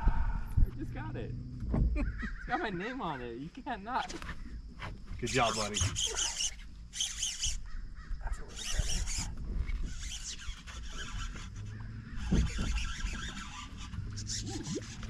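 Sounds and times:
low rumble: 0.0s - 2.4s
fishing reel cranking: 5.3s - 7.6s, 8.5s - 15.0s.

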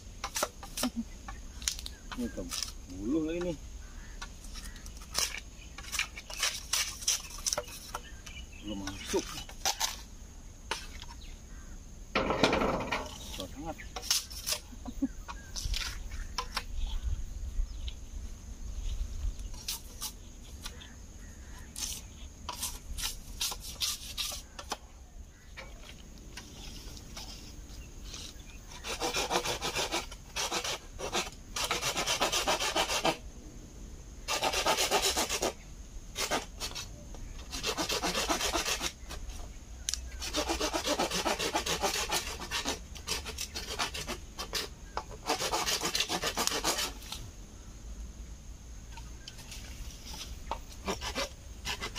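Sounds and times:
hand saw cutting bamboo: 4.6s - 8.1s, 12.6s - 14.7s, 21.8s - 24.8s, 28.1s - 33.2s, 34.3s - 35.6s, 36.2s - 39.2s, 40.2s - 47.2s, 50.1s - 51.9s
pole knocks and rustles: 12.2s - 13.5s.

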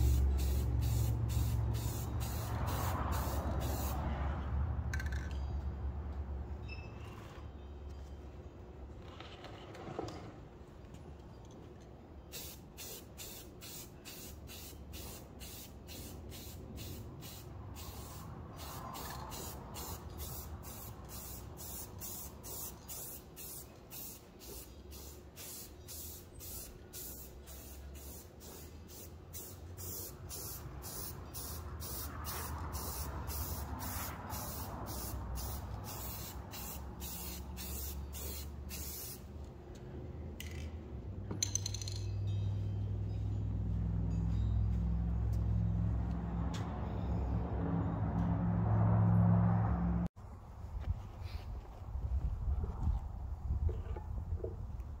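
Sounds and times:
pulsing air spray hiss: 0.0s - 4.0s, 12.4s - 39.3s.

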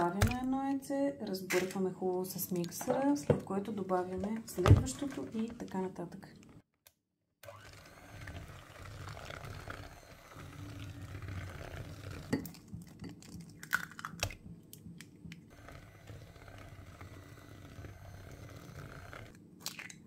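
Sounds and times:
electric hand mixer running: 7.4s - 12.4s, 15.5s - 19.4s.

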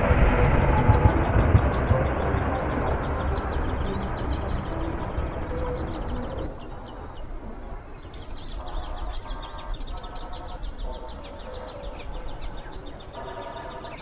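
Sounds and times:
steady low rumble: 0.0s - 14.0s
small birds chirping: 1.0s - 14.0s.

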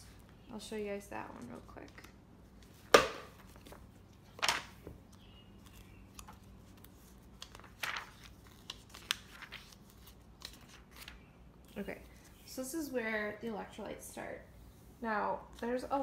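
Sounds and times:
book pages flipping: 1.4s - 12.4s.

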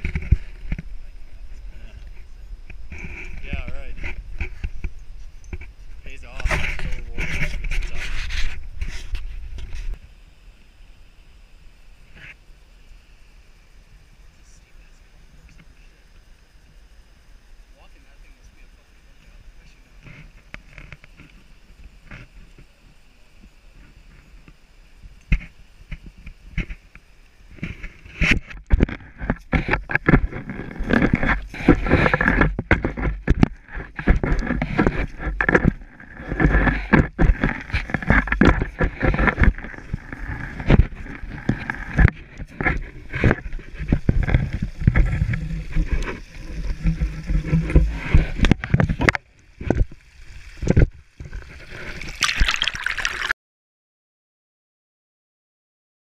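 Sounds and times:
meltwater trickling: 49.3s - 53.3s
footsteps in slushy snow: 51.4s - 53.3s.

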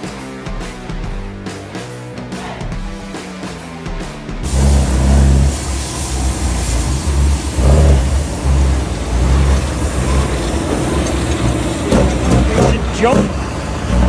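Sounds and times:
tractor diesel engine: 4.4s - 14.0s.

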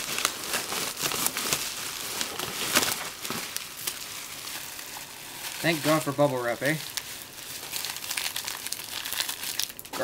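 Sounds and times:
bubble wrap crinkling and crackling: 0.0s - 10.0s.

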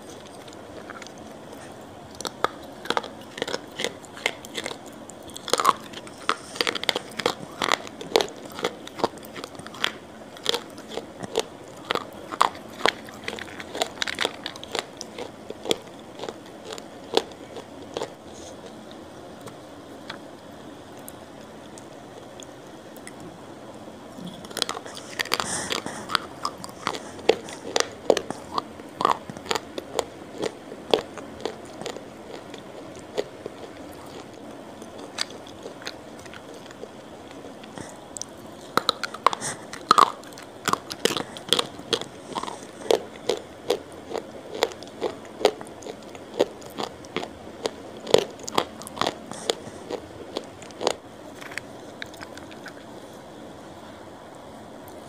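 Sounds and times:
crunchy snack chewing: 0.0s - 20.2s, 24.2s - 52.9s.

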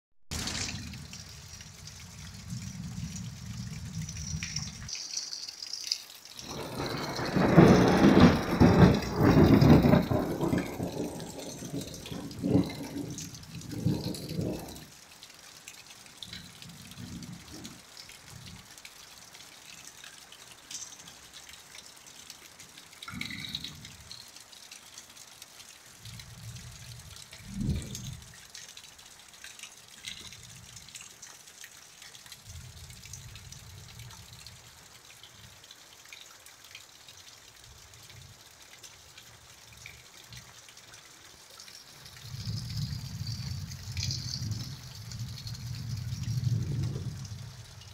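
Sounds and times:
steady rain: 0.3s - 47.9s
rolling thunder: 6.4s - 14.9s, 27.4s - 28.2s, 42.3s - 47.7s.

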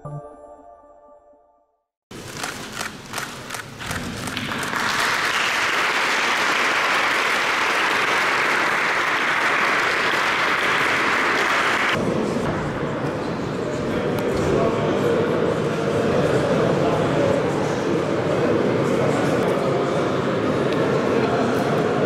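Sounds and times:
audience applause: 3.8s - 12.0s.

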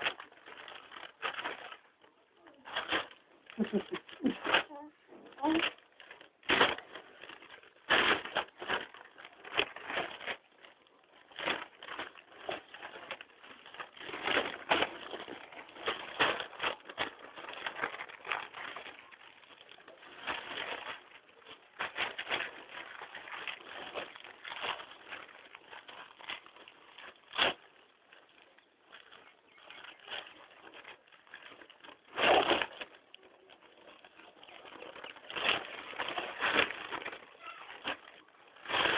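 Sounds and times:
newspaper rustling: 0.0s - 38.9s.

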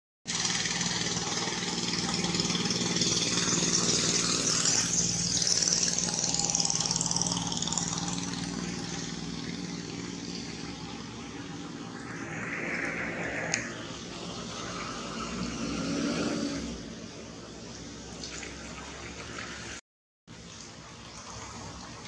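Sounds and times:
motor humming: 0.3s - 17.9s.

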